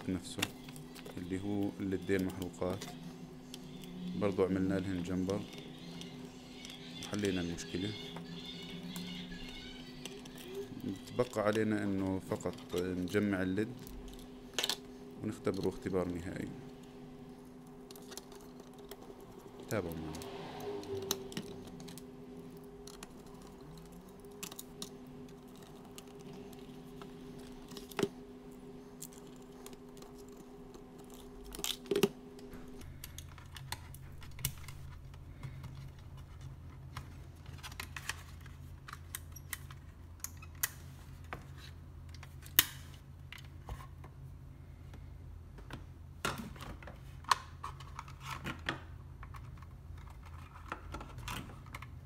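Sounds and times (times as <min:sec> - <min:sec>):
low hum: 0:00.0 - 0:40.3.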